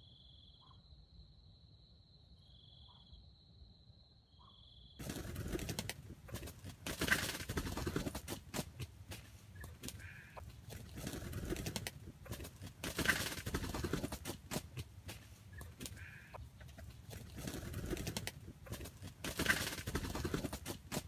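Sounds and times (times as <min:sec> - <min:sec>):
rustling in undergrowth: 0:05.0 - 0:21.0
rooster calling: 0:15.5 - 0:16.7.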